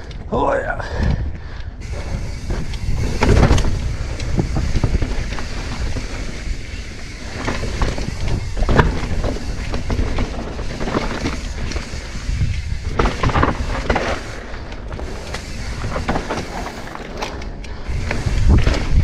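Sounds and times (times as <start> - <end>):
wind rumbling on microphone: 0.0 - 19.0
bike rattling over rocks: 1.0 - 19.0
tyre noise on dirt: 1.0 - 19.0.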